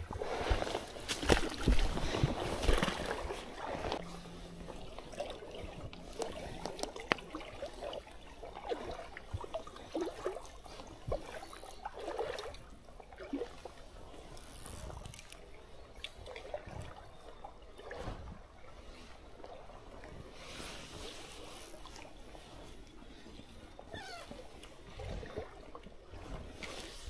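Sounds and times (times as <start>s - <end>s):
stream trickling and gurgling: 0.0s - 27.0s
small splashes and ticks: 0.6s - 4.1s, 4.9s - 17.0s.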